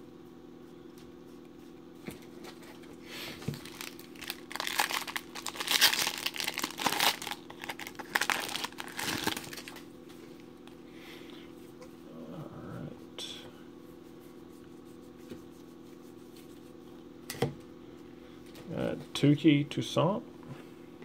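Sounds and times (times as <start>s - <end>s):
faint steady hum: 0.0s - 21.0s
foil wrapper crinkling and tearing: 3.4s - 9.9s.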